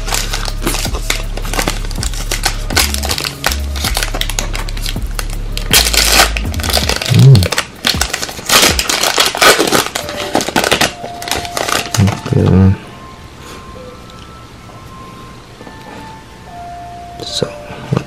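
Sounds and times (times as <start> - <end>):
background music with bass: 0.0 - 9.0
foil wrapper crinkling: 0.0 - 12.5.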